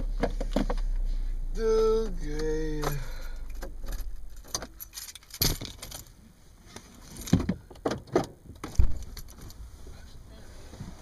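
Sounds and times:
car keys jangling in ignition: 0:02.3 - 0:06.2, 0:08.6 - 0:09.6.

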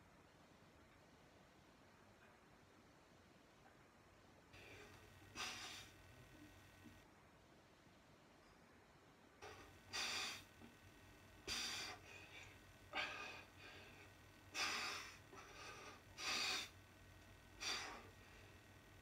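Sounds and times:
man breathing forcefully: 0:04.6 - 0:06.0, 0:09.4 - 0:10.6, 0:11.4 - 0:16.8, 0:17.6 - 0:18.7.

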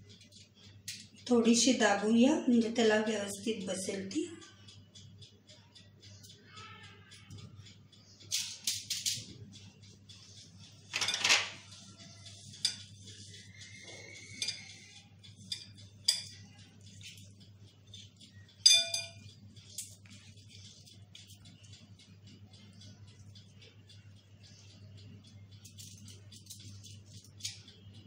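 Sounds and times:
clinks on glass bowl: 0:18.6 - 0:19.3.

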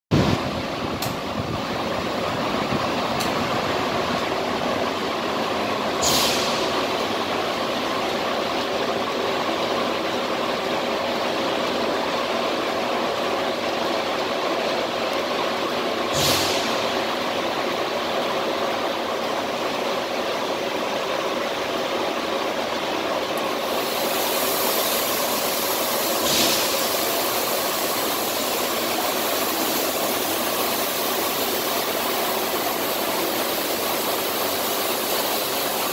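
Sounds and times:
cutting machine hum and hiss: 0:00.2 - 0:35.9
short bursts of hiss: 0:06.0 - 0:06.7, 0:23.7 - 0:27.6
cutting torch hissing: 0:16.1 - 0:16.8, 0:23.6 - 0:31.6.

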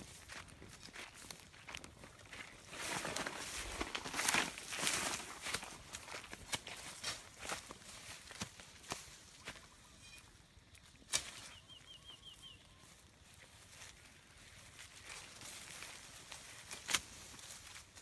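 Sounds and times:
faint outdoor ambience: 0:00.0 - 0:18.0
small bird chirping: 0:09.4 - 0:13.5.

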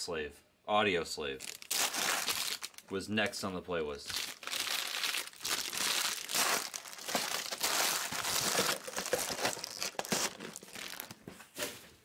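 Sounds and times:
plastic wrapping crinkling and tearing: 0:01.4 - 0:02.9, 0:04.0 - 0:11.3.

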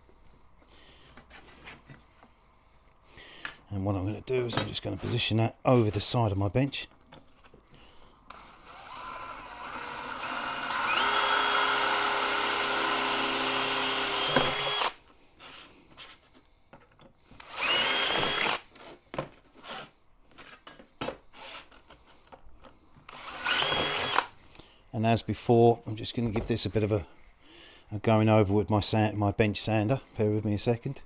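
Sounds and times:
cordless drill drilling metal: 0:08.3 - 0:15.0, 0:17.4 - 0:18.7, 0:23.1 - 0:24.3.

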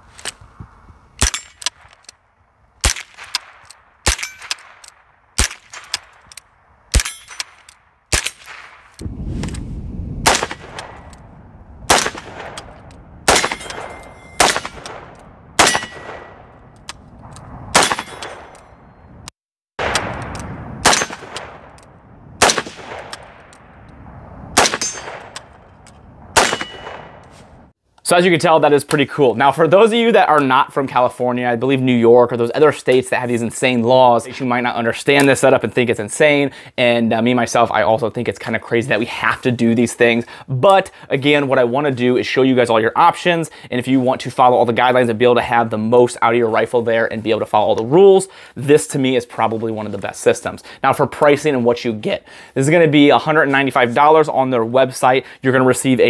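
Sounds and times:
rifle shots: 0:02.8 - 0:09.0, 0:10.2 - 0:18.8, 0:19.8 - 0:23.8, 0:24.5 - 0:25.7, 0:26.3 - 0:27.4.

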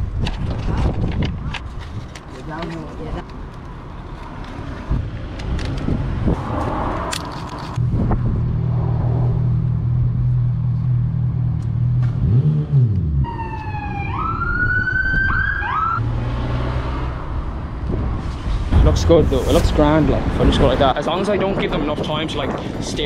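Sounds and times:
emergency siren wailing: 0:13.2 - 0:16.0.

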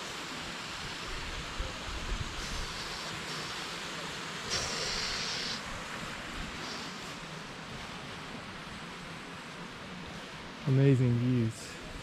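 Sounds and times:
sharp hiss: 0:02.2 - 0:08.0.

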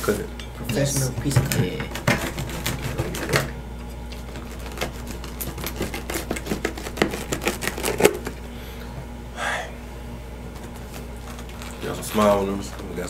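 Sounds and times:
pizza cutter crunching crust: 0:00.7 - 0:08.5, 0:10.6 - 0:13.0.

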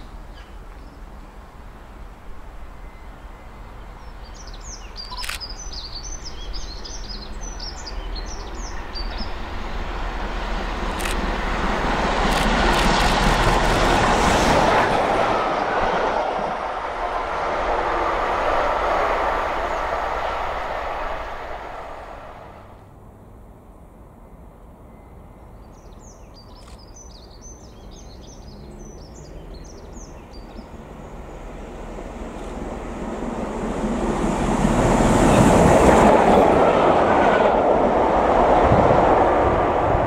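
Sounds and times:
steam locomotive passing: 0:00.0 - 0:26.2, 0:28.4 - 0:40.0
birds chirping: 0:02.8 - 0:10.0.

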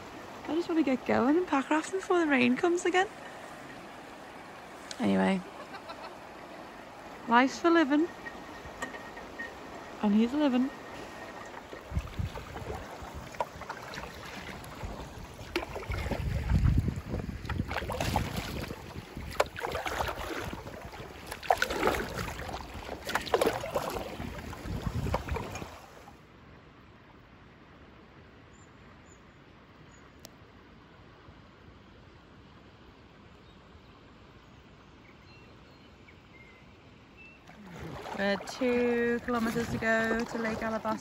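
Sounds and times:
paddles splashing in water: 0:00.0 - 0:26.2, 0:37.4 - 0:41.0
wind rumble on microphone: 0:07.9 - 0:26.0, 0:38.6 - 0:41.0.

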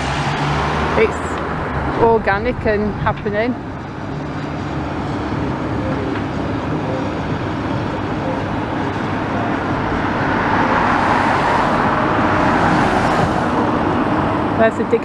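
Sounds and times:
car passing close by: 0:00.0 - 0:02.3, 0:09.5 - 0:14.6
road traffic rumble: 0:00.0 - 0:15.0.

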